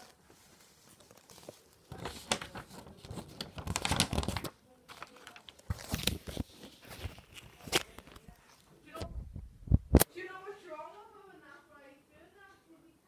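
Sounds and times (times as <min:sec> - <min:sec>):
paper rustling and crinkling: 0:00.0 - 0:08.7.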